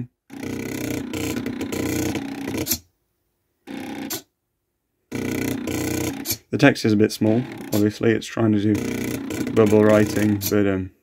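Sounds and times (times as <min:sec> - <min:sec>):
stepper motors buzzing: 0:00.3 - 0:02.8, 0:03.7 - 0:04.2, 0:05.1 - 0:06.6, 0:07.2 - 0:08.0, 0:08.6 - 0:10.6.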